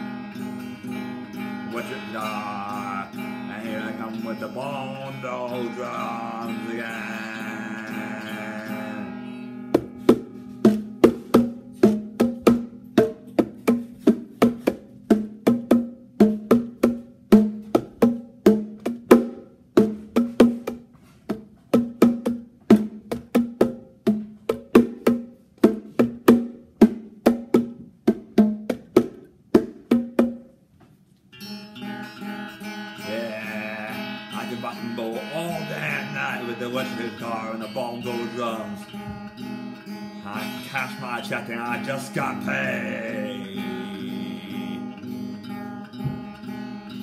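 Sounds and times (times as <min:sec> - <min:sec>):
strummed guitar chord: 0:00.0 - 0:13.3, 0:31.4 - 0:47.0
electric guitar struck notes: 0:31.4 - 0:47.0.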